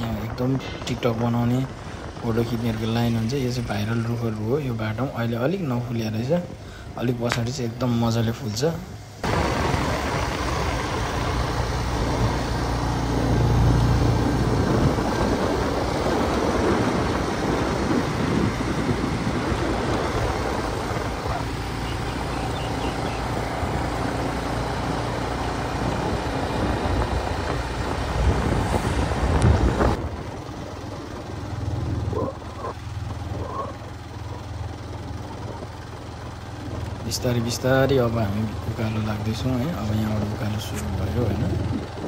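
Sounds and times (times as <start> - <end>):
low engine rumble: 0.0 - 42.0
wind and road noise: 0.0 - 42.0.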